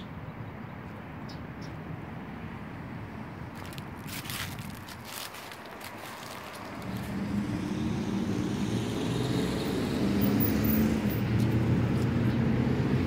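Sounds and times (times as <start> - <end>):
low engine drone: 5.4 - 13.0.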